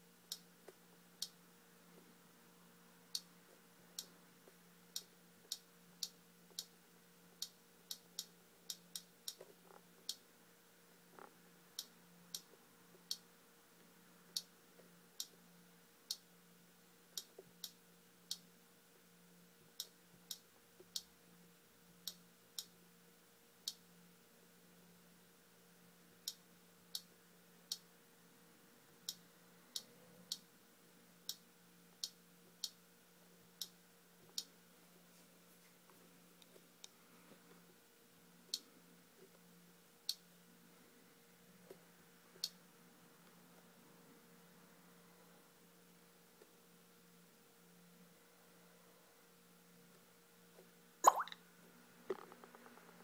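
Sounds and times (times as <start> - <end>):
finger tapping touchscreen: 51.0 - 51.4.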